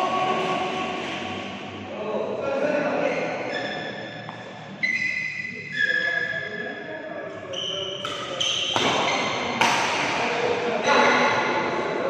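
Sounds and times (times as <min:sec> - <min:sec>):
echoing voices: 0:00.0 - 0:12.0
sports hall background noise: 0:00.0 - 0:12.0.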